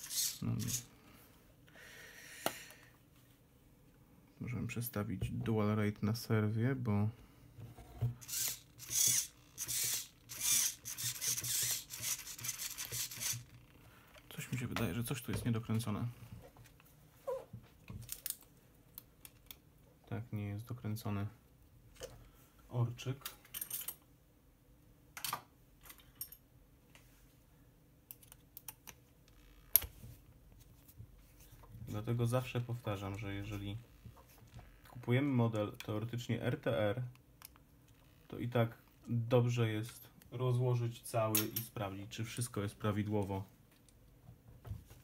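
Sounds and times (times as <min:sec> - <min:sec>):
servo whirring: 0:00.0 - 0:00.9, 0:08.2 - 0:13.5.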